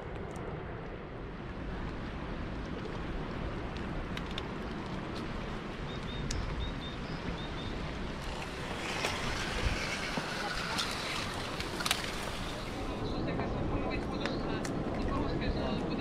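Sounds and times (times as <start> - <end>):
wind: 0.0 - 16.0
moving floodwater: 1.3 - 16.0
small clicks: 3.8 - 5.3.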